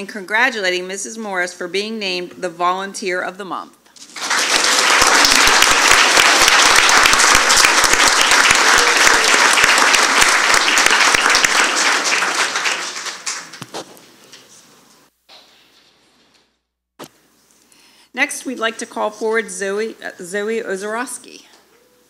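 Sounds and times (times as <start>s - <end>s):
audience applauding: 4.0s - 13.8s.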